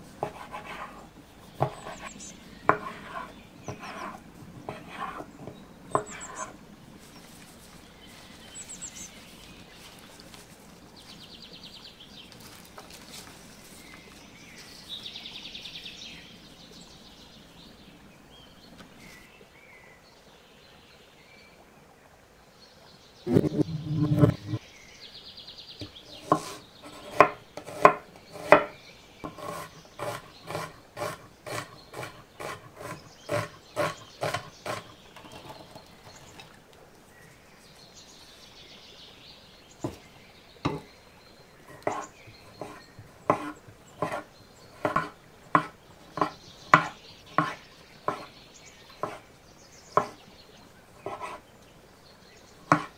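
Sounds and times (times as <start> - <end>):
birds chirping: 0.0 - 21.6, 22.6 - 52.9
knife chopping on cutting board: 1.6 - 2.0, 2.7 - 5.2, 26.2 - 34.9, 42.6 - 48.3, 50.0 - 50.2.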